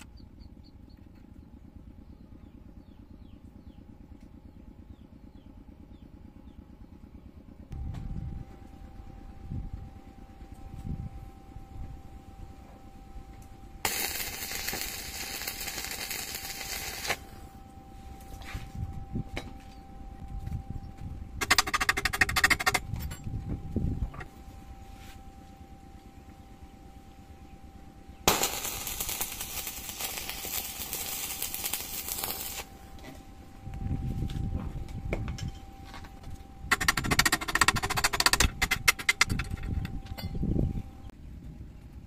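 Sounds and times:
welding arc crackling hiss: 13.8s - 17.5s, 28.3s - 32.7s.

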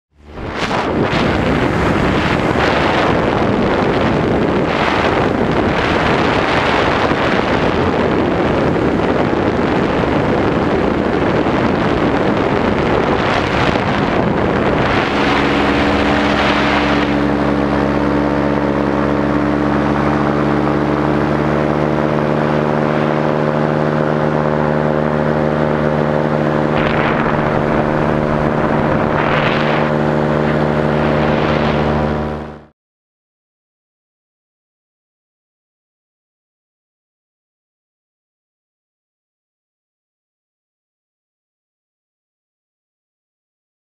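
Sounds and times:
paramotor engine droning: 0.1s - 32.7s
wind buffeting microphone: 0.2s - 32.7s.

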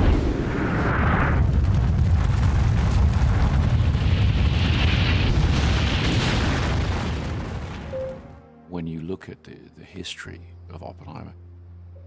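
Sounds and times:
explosion rumble: 0.0s - 8.0s.

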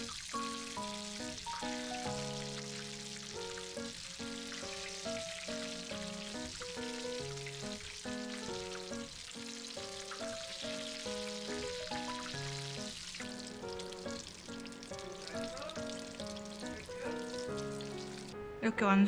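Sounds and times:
shrimp deep-frying in hot oil: 0.0s - 18.4s
light background music: 0.0s - 19.0s.

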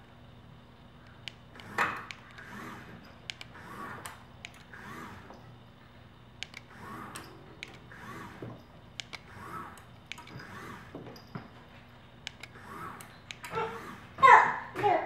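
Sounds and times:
sharp clicks and knocks: 1.1s - 5.4s, 6.4s - 11.6s, 12.2s - 13.6s
small electric motor whirring: 1.5s - 5.5s, 6.5s - 11.3s, 12.3s - 14.2s.

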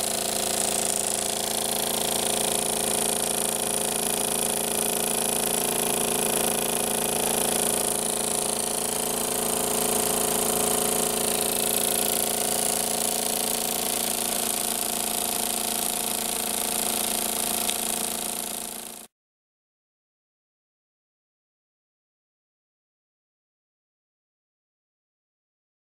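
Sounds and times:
steam engine whirring: 4.1s - 18.9s.

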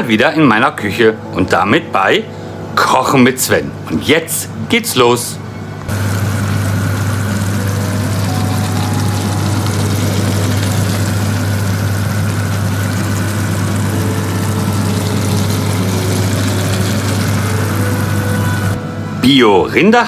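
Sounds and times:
meat and onion sizzling in a pan: 5.9s - 18.8s.

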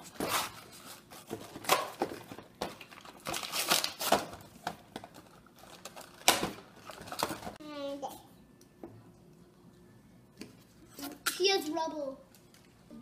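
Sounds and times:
plastic packaging tearing: 3.0s - 4.3s.

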